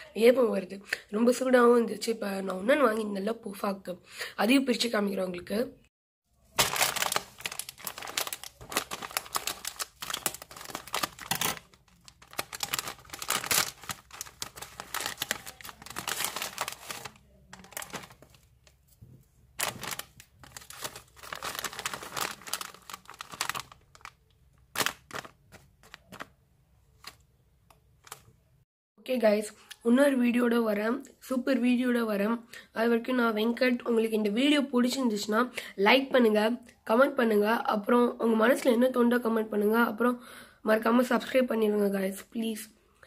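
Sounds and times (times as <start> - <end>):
foil snack bag crinkling: 6.5 - 18.7, 19.6 - 26.3.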